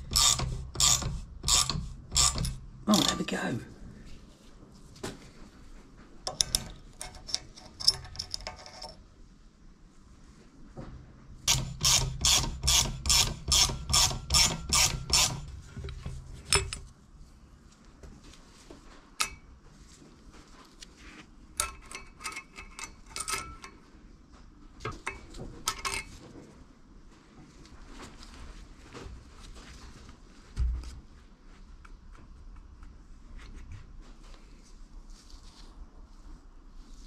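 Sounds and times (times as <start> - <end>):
metallic winding strokes: 0.0 - 3.4, 11.5 - 15.5.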